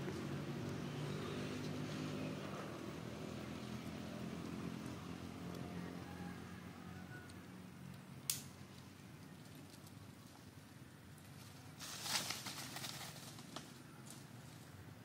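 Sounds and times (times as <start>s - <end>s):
low motor hum: 0.0s - 11.8s.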